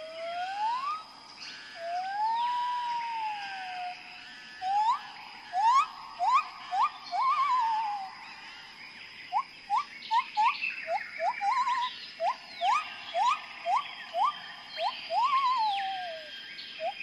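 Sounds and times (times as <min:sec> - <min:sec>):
whistle-like gliding tone: 0:04.6 - 0:08.1, 0:11.2 - 0:17.0.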